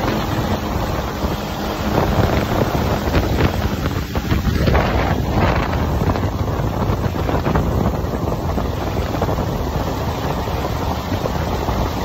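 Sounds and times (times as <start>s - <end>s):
jet ski engine: 0.0s - 12.0s
water churning: 0.0s - 12.0s
wind buffeting microphone: 0.0s - 12.0s.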